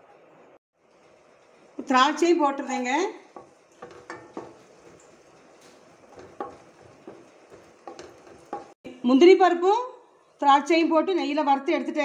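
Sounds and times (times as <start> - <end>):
faint frying sizzle: 0.8 - 12.0
wooden spatula scraping a pan: 1.0 - 8.8.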